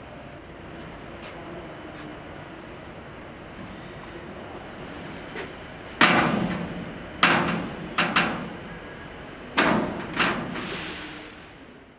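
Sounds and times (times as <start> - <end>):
metal door banging shut: 6.0 - 8.7, 9.5 - 11.4.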